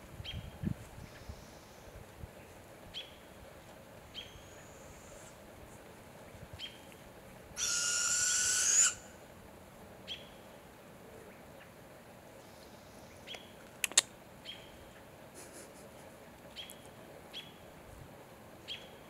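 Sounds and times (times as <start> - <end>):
owl raspy hissing screech: 7.6 - 9.1.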